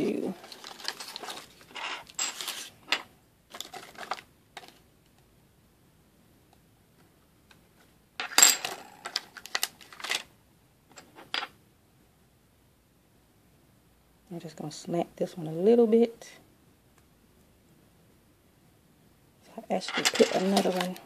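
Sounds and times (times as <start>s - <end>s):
plastic sticker sheet crinkling: 0.4s - 1.7s, 3.5s - 4.8s, 20.2s - 21.0s.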